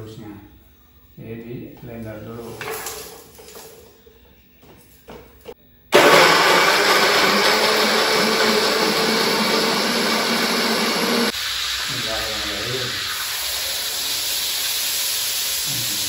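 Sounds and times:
electric blender running: 5.9s - 15.8s.

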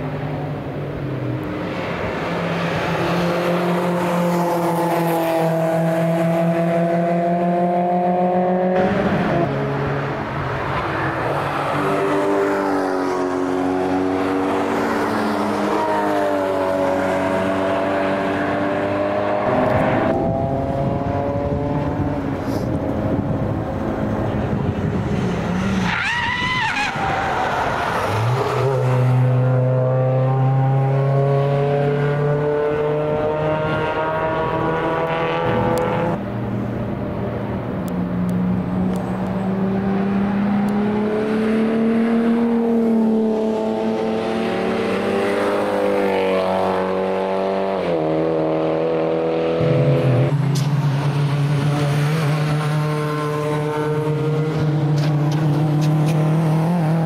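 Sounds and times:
racing car engines passing: 0.0s - 57.0s.

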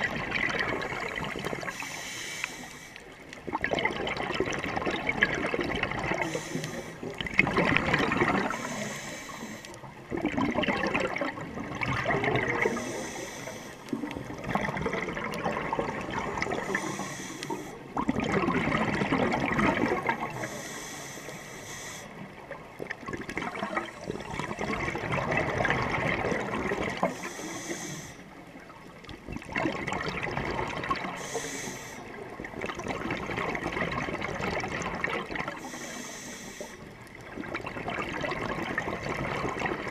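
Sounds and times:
exhaled air bubbling underwater: 0.0s - 39.9s
regulator inhale hiss: 1.5s - 3.3s, 6.2s - 7.2s, 8.4s - 9.9s, 12.6s - 14.1s, 16.4s - 17.9s, 20.2s - 22.4s, 27.0s - 28.4s, 31.1s - 32.2s, 35.6s - 36.9s.

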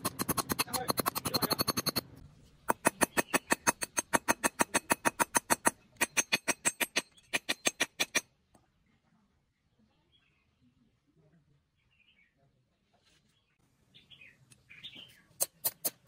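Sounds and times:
hammer striking metal rod: 0.0s - 2.0s, 2.7s - 8.2s.

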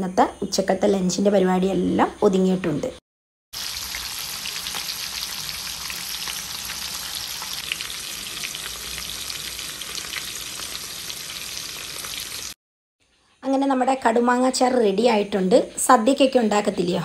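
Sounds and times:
food sizzling in hot oil: 3.6s - 12.6s
oil crackling and popping: 3.6s - 12.6s.

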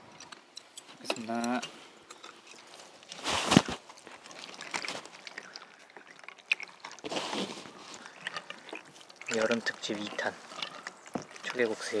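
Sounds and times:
chopsticks clicking against metal bowls: 0.2s - 2.4s.

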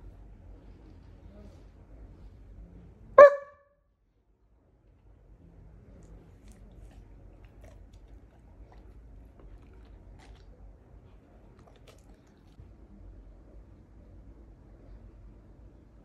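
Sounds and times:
dog chewing: 6.0s - 12.6s.

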